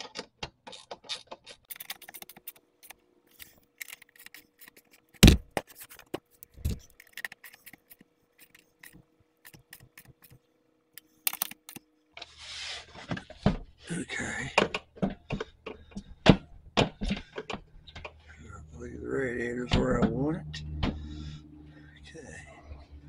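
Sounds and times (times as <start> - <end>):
small clicks and scrapes: 0.0 - 13.4.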